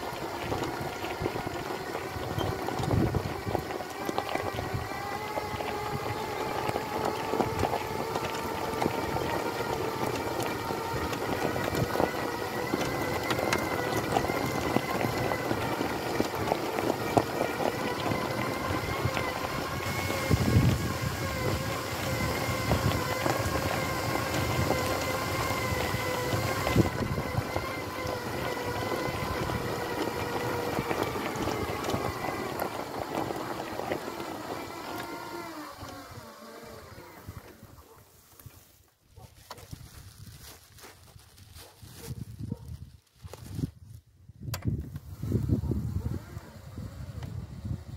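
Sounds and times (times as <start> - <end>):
electric motor whine: 0.0 - 38.6, 44.8 - 47.9
tyres crunching on gravel: 0.0 - 44.0.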